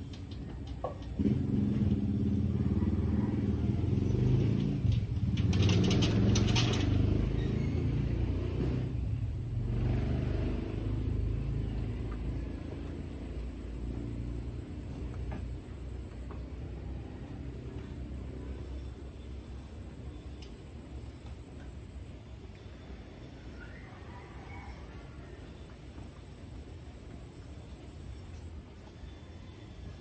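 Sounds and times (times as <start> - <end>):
vehicle engine running: 0.0 - 23.3.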